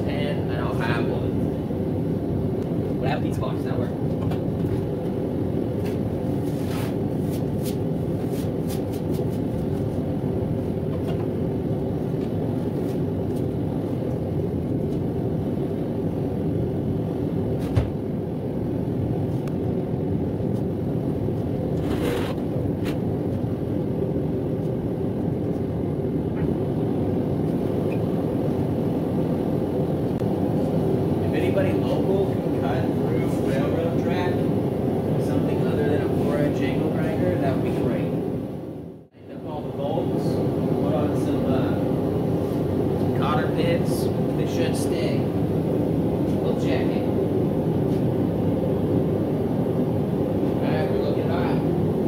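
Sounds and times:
workshop equipment roaring: 0.0s - 52.0s.

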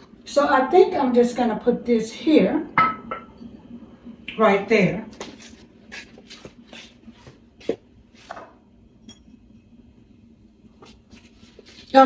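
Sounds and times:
faint footsteps: 5.1s - 8.6s.

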